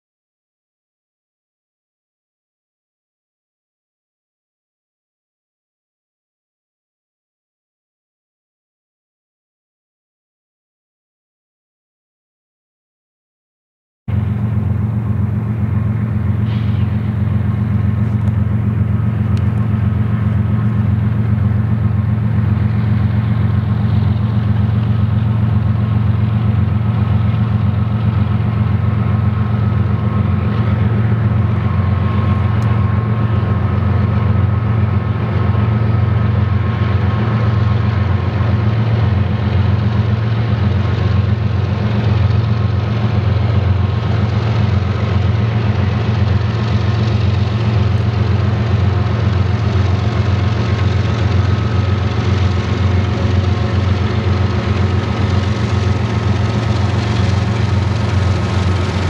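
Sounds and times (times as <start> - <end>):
diesel locomotive engine rumble: 14.1 - 59.0.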